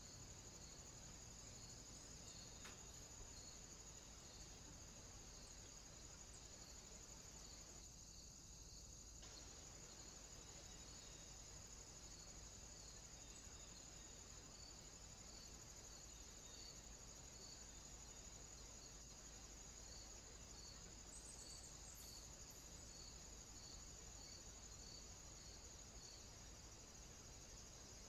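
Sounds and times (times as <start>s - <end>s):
crickets chirring: 0.0s - 28.0s
soft insect chirp: 0.0s - 28.0s.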